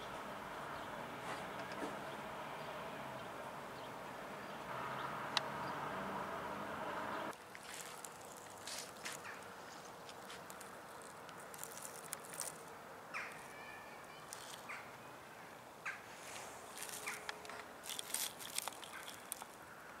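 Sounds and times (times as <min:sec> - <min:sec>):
rustles and clicks: 0:07.4 - 0:13.6, 0:14.2 - 0:14.7, 0:16.1 - 0:19.6.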